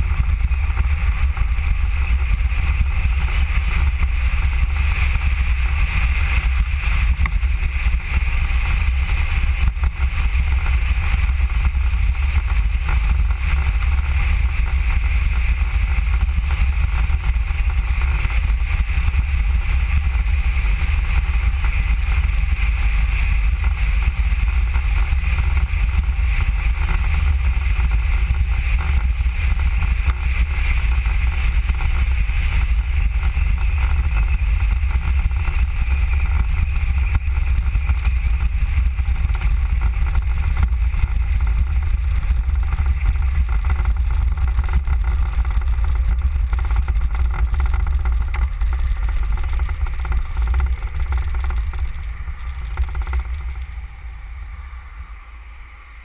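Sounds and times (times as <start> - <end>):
velomobile rolling on asphalt: 0.0 - 56.0.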